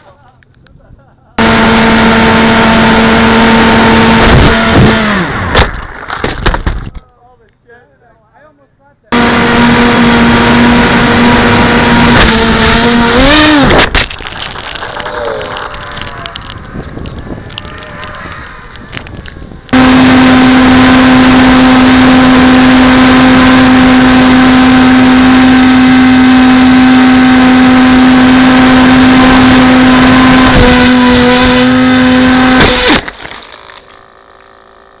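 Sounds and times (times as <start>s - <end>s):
electric motor propeller whine: 1.4s - 5.9s, 9.2s - 35.0s
wind rush: 15.3s - 19.8s.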